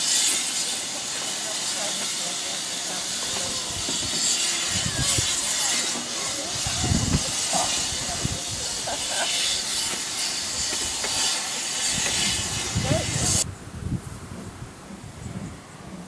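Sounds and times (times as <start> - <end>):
steam locomotive venting steam: 0.0 - 16.0.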